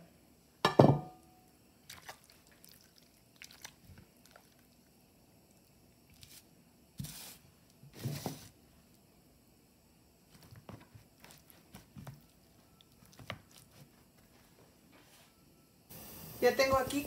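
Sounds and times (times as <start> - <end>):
wet squishes in egg: 1.8 - 4.9.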